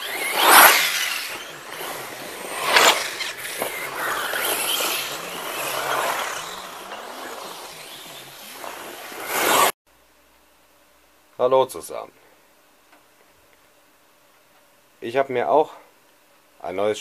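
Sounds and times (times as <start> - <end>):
rc buggy driving past: 0.0 - 9.7.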